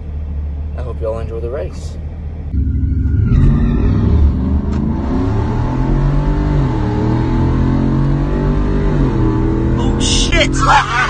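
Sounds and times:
trucks accelerating hard: 0:02.5 - 0:11.0.

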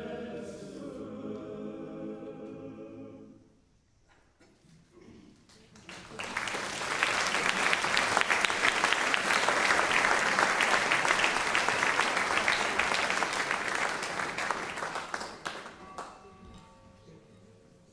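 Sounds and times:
audience applauding: 0:05.5 - 0:16.2.

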